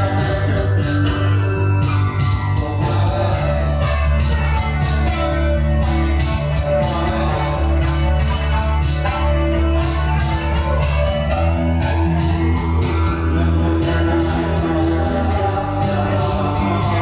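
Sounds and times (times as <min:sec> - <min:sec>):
electric guitar: 0:00.0 - 0:17.0
live rock music: 0:00.0 - 0:17.0.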